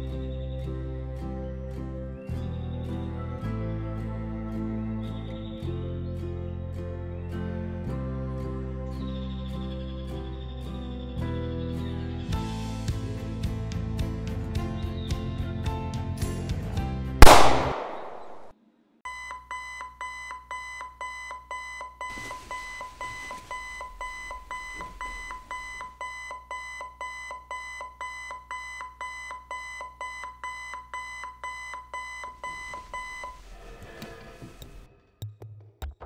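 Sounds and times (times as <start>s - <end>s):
music: 0.0s - 17.2s, 33.7s - 36.0s
loud bang: 17.2s - 18.5s
alarm clock beeping: 19.1s - 33.4s.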